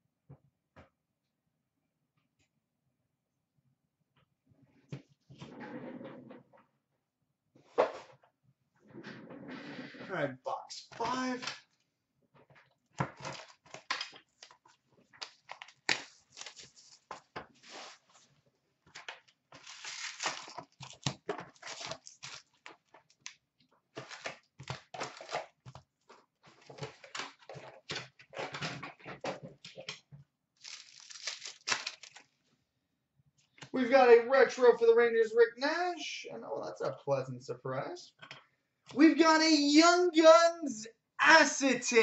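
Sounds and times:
card packs ripping and crinkling: 13.2 - 14.5, 15.2 - 18.0, 19.6 - 22.9, 24.0 - 25.6, 30.6 - 32.3.

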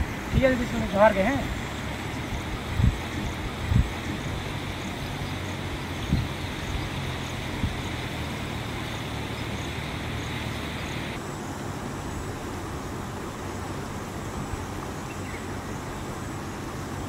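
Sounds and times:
low hum: 0.0 - 11.2
even hiss: 0.0 - 17.0
outdoor background rumble: 0.0 - 17.0.

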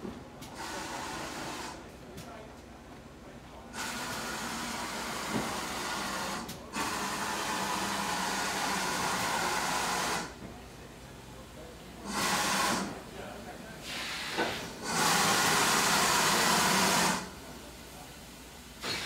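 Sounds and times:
steam locomotive hissing: 0.5 - 1.9, 3.7 - 10.4, 12.0 - 19.0.

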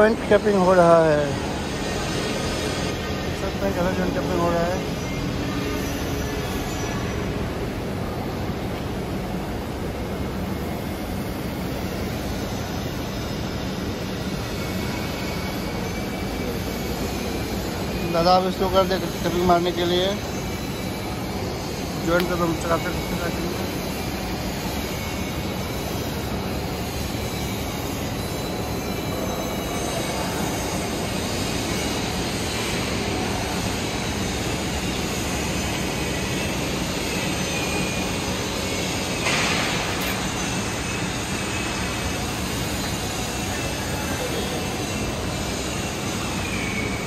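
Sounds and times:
workshop noise: 0.0 - 47.0
welding torch hiss: 5.7 - 47.0
faint high squealing tones: 11.9 - 47.0.

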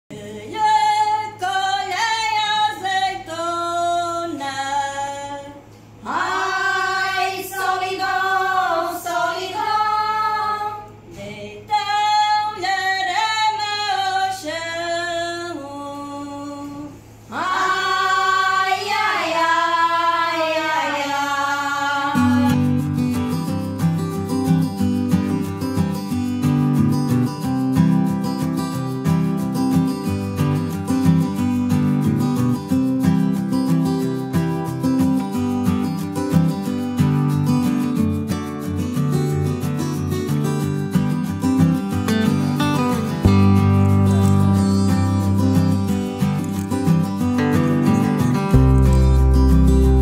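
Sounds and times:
women singing unaccompanied: 0.1 - 22.7
guitar: 0.1 - 50.0.

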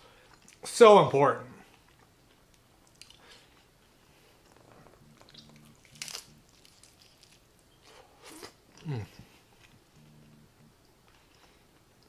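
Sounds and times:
faint chewing: 1.6 - 12.0
crunch of taco shell bite: 5.2 - 7.4.

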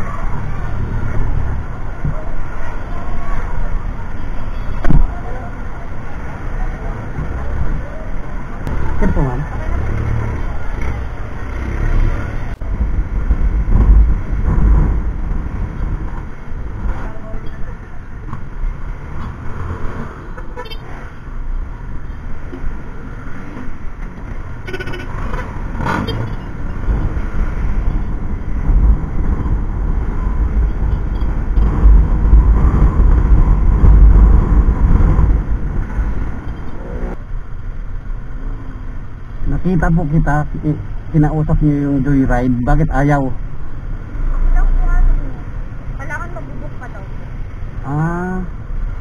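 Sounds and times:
surrounding traffic: 0.0 - 49.0
wind on microphone: 12.5 - 17.0, 26.8 - 37.2.

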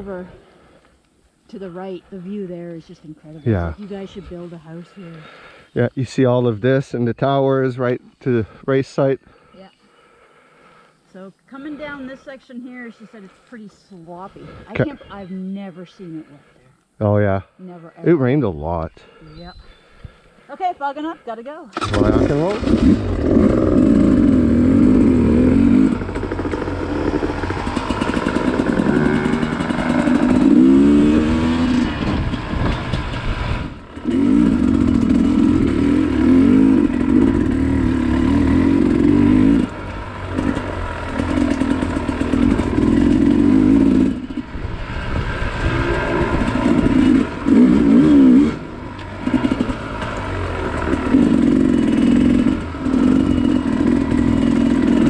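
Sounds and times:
dirt bike engine revving: 21.8 - 55.0.

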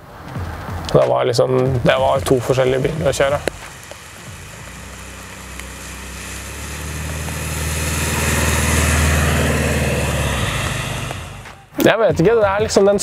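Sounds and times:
tyres hissing on wet road: 1.6 - 11.7
van engine drone passing: 1.6 - 11.8.

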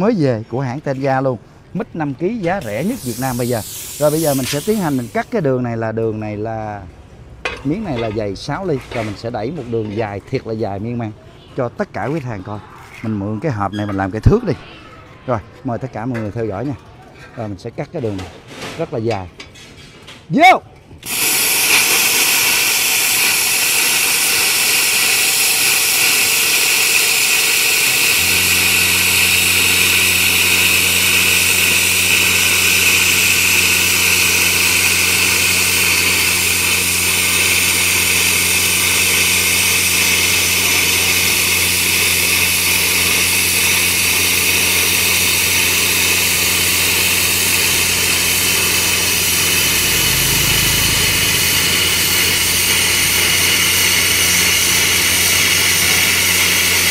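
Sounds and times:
air compressor humming: 2.3 - 5.4, 21.0 - 56.9
plasma cutter arc hissing: 2.6 - 5.5, 21.0 - 56.9.

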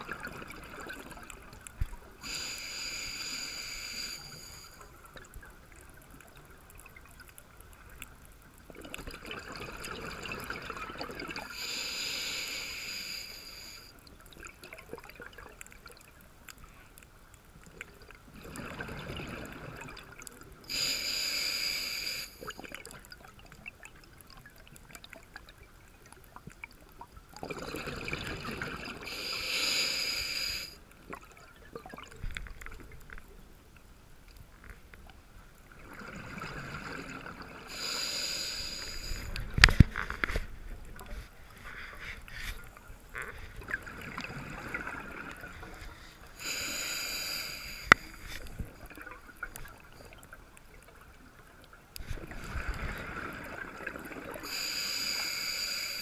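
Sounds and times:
exhaled bubbles burbling: 0.0 - 1.6, 8.7 - 11.5, 17.9 - 20.4, 27.4 - 29.1, 35.8 - 37.8
diver breathing through regulator: 2.2 - 4.8, 11.5 - 13.9, 20.7 - 22.5, 29.1 - 30.8, 37.7 - 40.4, 45.6 - 48.5, 54.3 - 56.0.

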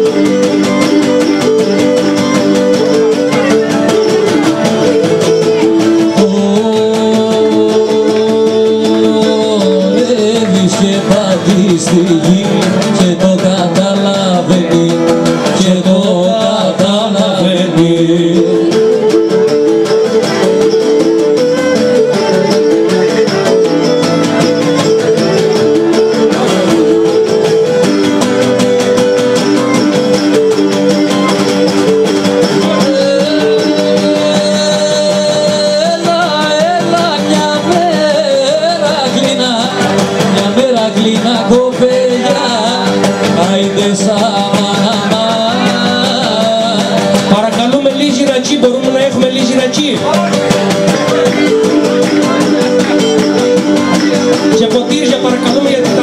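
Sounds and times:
bowed lyra melody: 0.0 - 56.0
man singing: 0.0 - 56.0
plucked lutes in steady rhythm: 0.0 - 56.0.

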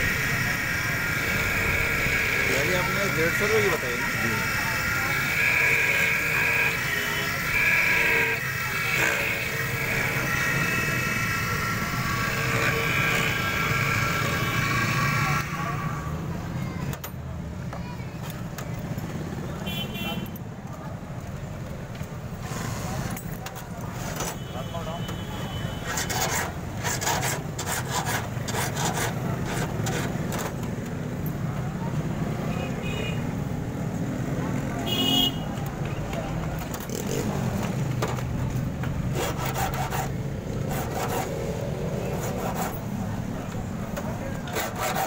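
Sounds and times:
key cutting machine whining: 0.0 - 15.0.

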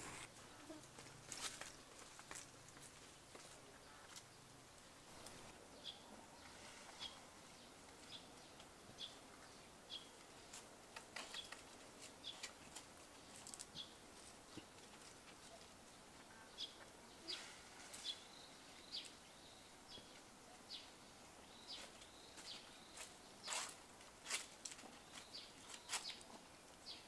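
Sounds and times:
outdoor hiss: 0.0 - 0.4.

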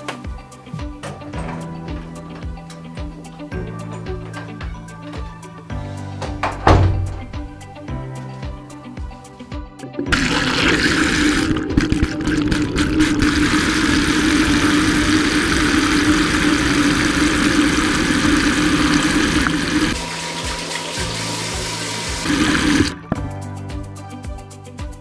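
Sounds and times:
toilet flushing: 9.9 - 23.0
sink tap running: 10.1 - 23.0.

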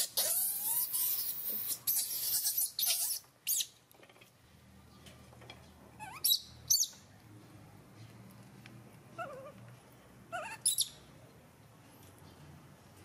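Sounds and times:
baby monkeys squeaking: 0.0 - 3.8, 6.0 - 7.0, 10.3 - 11.0.

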